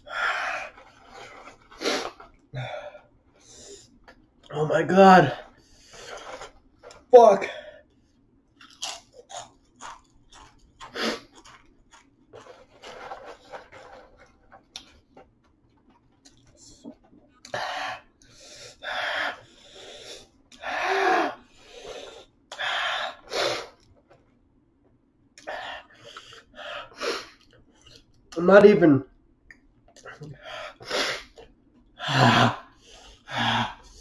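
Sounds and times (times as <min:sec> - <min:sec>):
voiced wheeze: 0:32.0 - 0:34.0.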